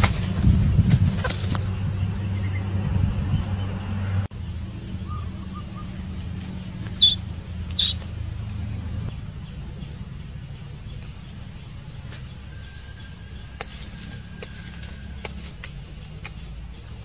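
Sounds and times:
steady low hum: 0:00.0 - 0:17.0
bird chirps: 0:01.6 - 0:08.1.

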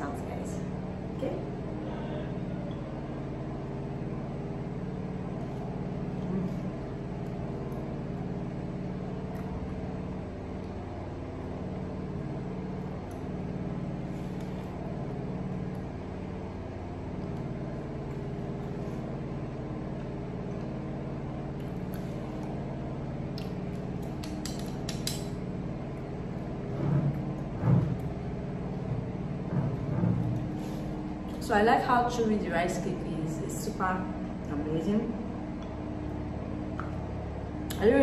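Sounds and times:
low mechanical hum: 0:00.0 - 0:38.0
utensils clicking on ceramic bowl: 0:24.2 - 0:25.3.

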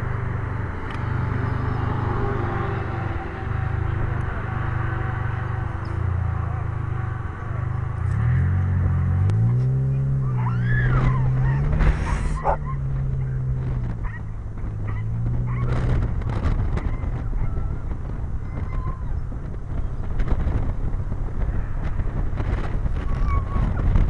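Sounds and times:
car engine pulling away: 0:00.0 - 0:24.0
dog whining: 0:10.2 - 0:12.8.

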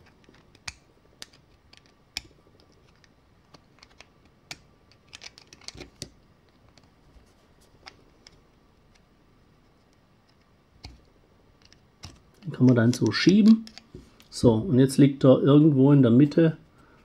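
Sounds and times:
faint metal clicks and taps: 0:09.8 - 0:14.3.

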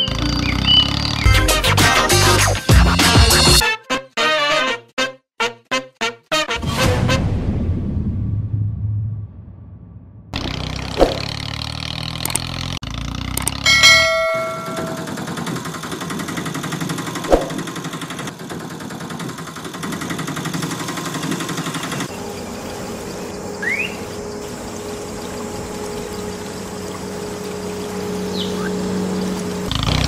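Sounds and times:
clicks: 0:12.2 - 0:12.6, 0:13.3 - 0:15.2
bell chime sound effect: 0:13.7 - 0:15.2.

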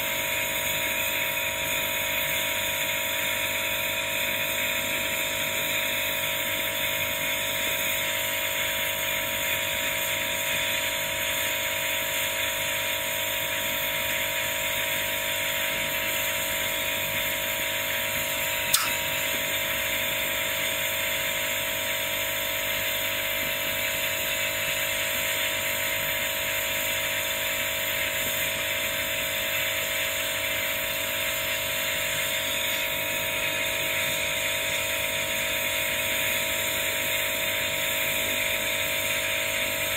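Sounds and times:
sharp click: 0:18.7 - 0:19.4.

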